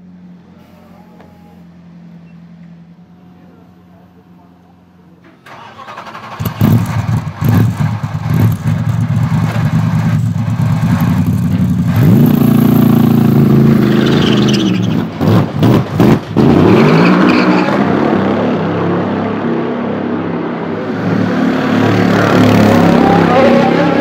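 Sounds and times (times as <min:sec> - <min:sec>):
race car engine starting and revving: 0:05.4 - 0:24.0.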